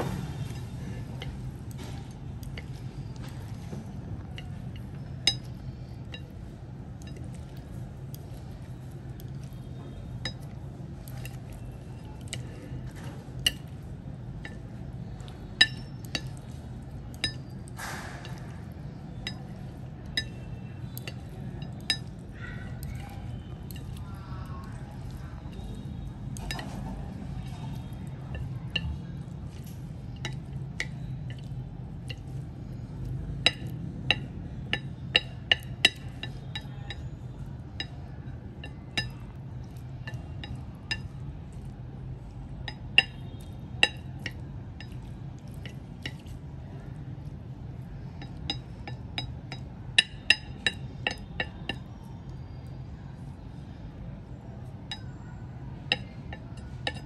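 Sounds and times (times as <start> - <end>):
steady low hum: 0.0 - 57.0
chopsticks clinking on a plate: 4.2 - 8.4, 10.2 - 14.7, 15.3 - 24.0, 24.7 - 41.8, 42.6 - 46.4, 48.1 - 52.1, 54.8 - 55.2, 55.8 - 57.0.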